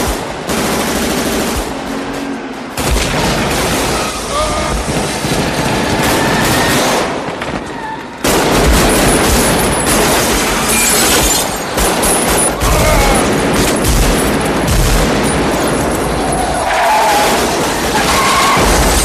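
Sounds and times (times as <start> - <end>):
glass shattering: 8.7 - 16.5, 17.9 - 19.0.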